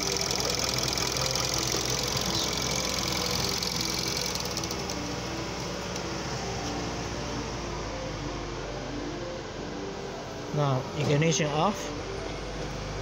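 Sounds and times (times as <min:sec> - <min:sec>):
fast even engine ticking: 0:00.0 - 0:05.2
car engine idling: 0:00.0 - 0:13.0.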